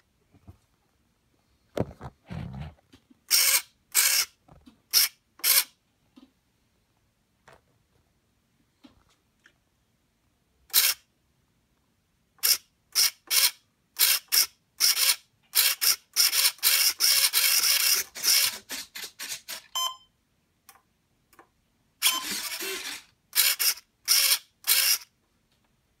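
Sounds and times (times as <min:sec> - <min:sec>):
servo motor whirring: 0:22.0 - 0:25.1.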